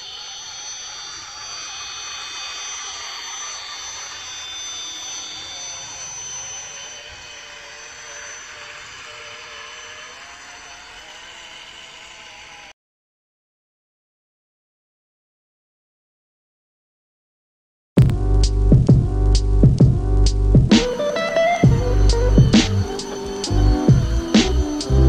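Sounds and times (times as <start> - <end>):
electric motors whining: 0.0 - 12.7, 18.2 - 25.0
low wavering motor whine: 0.0 - 12.8, 18.0 - 25.0.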